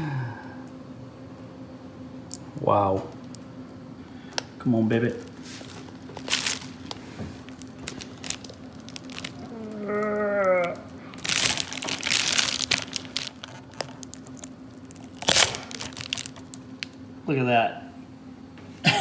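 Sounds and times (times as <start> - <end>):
person grunting: 0.0 - 0.6, 9.4 - 10.9
gel crackling and tearing: 5.2 - 17.0.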